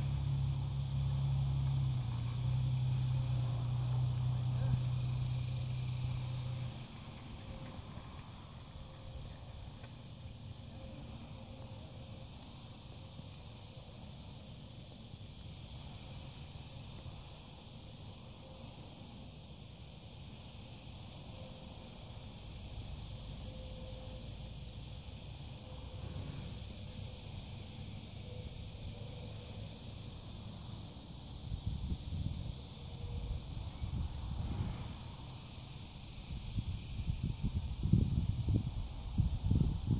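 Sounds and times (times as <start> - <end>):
insects buzzing: 0.0 - 39.9
wind rumble on microphone: 31.5 - 35.2, 36.1 - 39.9.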